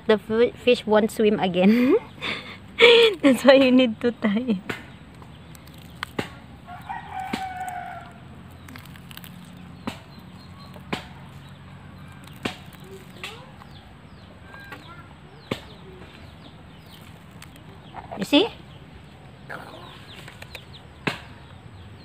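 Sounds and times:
rooster crowing: 6.6s - 8.2s.

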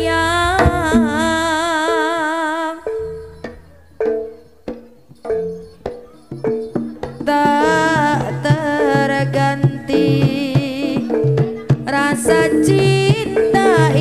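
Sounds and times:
melody with wide vibrato: 0.0s - 4.7s
hand drum strokes: 0.0s - 14.0s
low thumps: 0.0s - 14.0s.

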